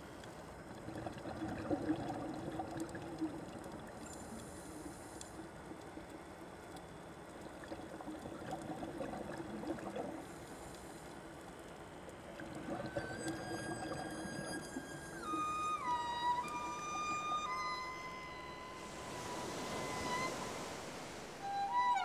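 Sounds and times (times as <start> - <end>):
water trickling and flowing: 0.0 - 22.0
held musical tone: 13.2 - 22.0.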